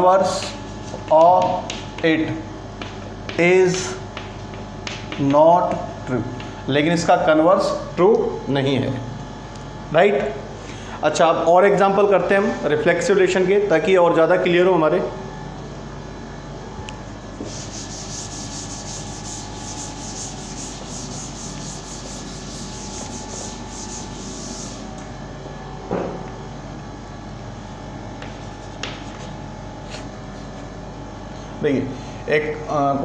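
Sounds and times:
duster rubbing on chalkboard: 17.3s - 25.0s, 28.2s - 30.1s.

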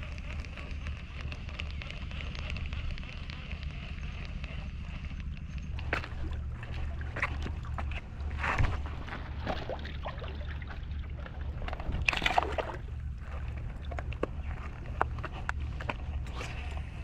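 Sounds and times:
waves sloshing against rocks: 5.7s - 16.2s.

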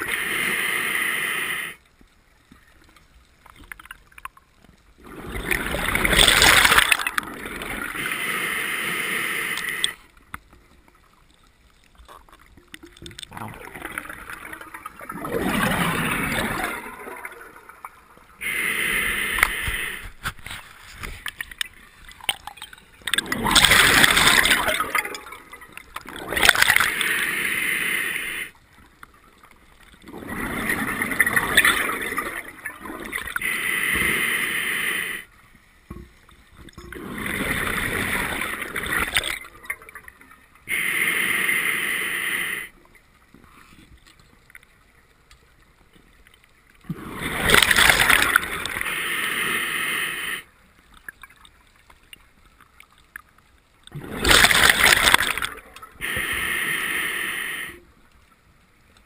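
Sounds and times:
regulator inhale hiss: 0.0s - 1.8s, 7.9s - 10.0s, 18.4s - 20.2s, 26.8s - 28.6s, 33.4s - 35.4s, 40.7s - 42.8s, 48.6s - 50.6s, 56.0s - 57.9s
exhaled bubbles gurgling: 5.0s - 10.0s, 12.1s - 20.2s, 21.0s - 28.5s, 29.8s - 35.2s, 36.7s - 42.7s, 46.8s - 51.5s, 53.9s - 57.8s.

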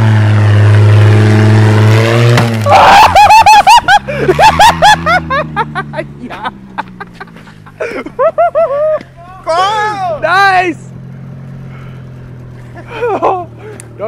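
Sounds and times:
car engine revving and idling: 0.0s - 2.7s, 3.9s - 14.0s
high-pitched laughter: 2.7s - 9.1s, 12.8s - 13.6s.

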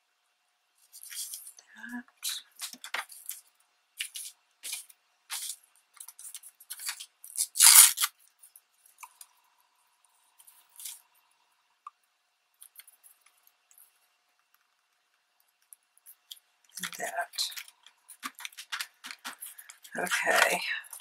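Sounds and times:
paper strips rustling: 2.2s - 8.1s, 16.7s - 21.0s.

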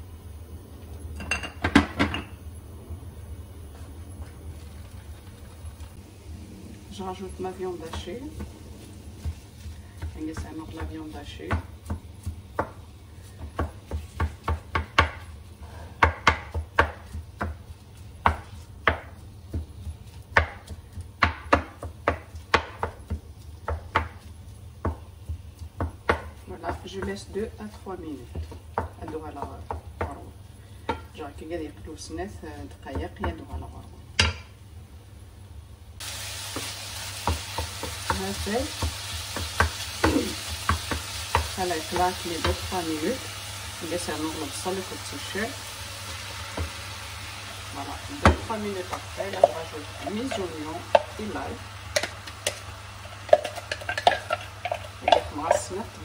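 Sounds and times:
meat sizzling in a frying pan: 5.6s - 34.5s, 36.0s - 56.0s
wooden spatula scraping a pan: 7.6s - 14.6s
wooden spatula scraping frying pan: 51.9s - 56.0s.

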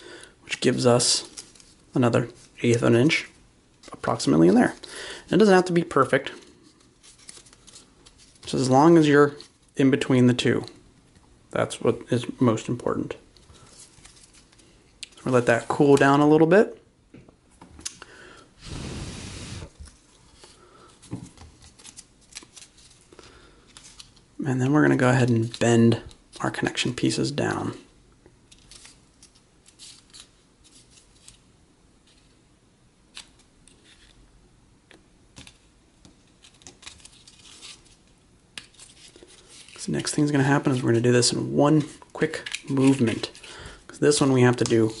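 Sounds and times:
cardboard pieces rustling: 6.8s - 8.6s
breath-like rush of air: 18.1s - 19.8s.

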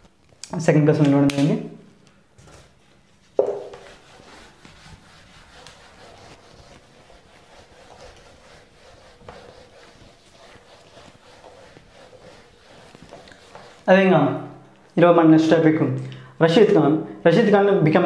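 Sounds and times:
duster rubbing on whiteboard: 3.3s - 14.1s
sharp knock: 3.4s - 3.8s.

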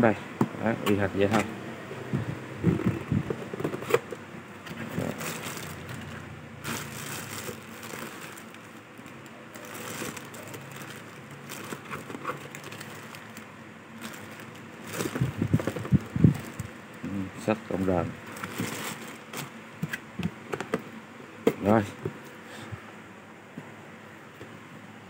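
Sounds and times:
packaging rustling and crinkling: 2.8s - 16.9s, 18.2s - 20.0s.

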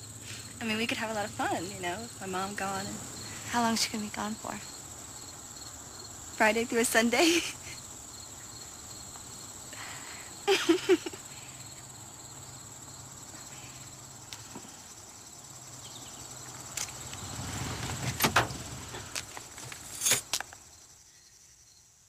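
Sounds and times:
crickets chirring: 0.0s - 22.0s
car pulling up: 15.9s - 20.3s.

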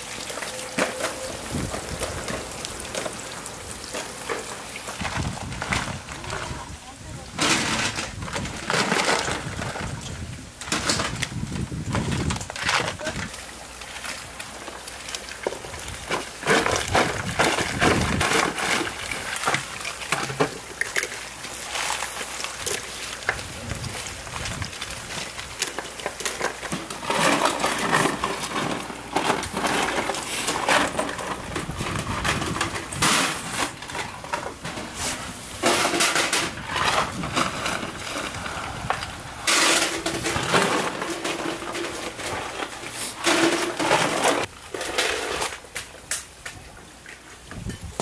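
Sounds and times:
oyster shells clattering: 10.6s - 45.6s.

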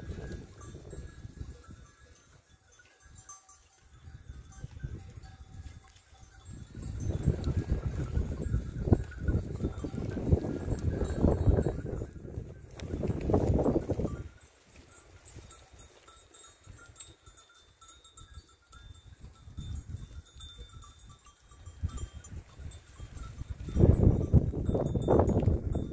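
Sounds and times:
footsteps on rocky slope: 12.4s - 16.4s.

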